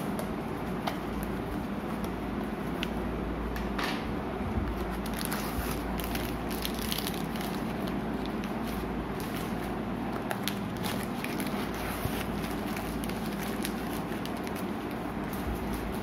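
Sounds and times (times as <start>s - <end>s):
steady low hum: 0.0s - 16.0s
plastic wrappers crinkling: 4.9s - 16.0s.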